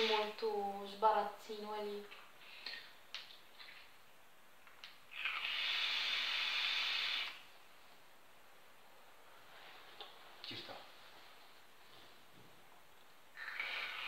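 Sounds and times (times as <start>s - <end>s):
vape hissing: 5.1s - 7.5s, 13.4s - 14.0s.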